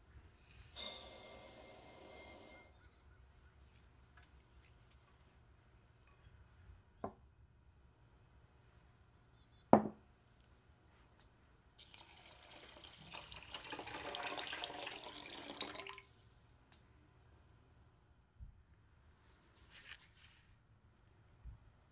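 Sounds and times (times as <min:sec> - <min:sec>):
water pouring onto rice: 0:11.8 - 0:16.1.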